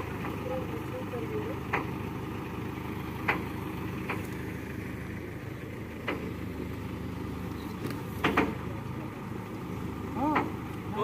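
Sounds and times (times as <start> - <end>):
crane engine humming: 0.0 - 11.0.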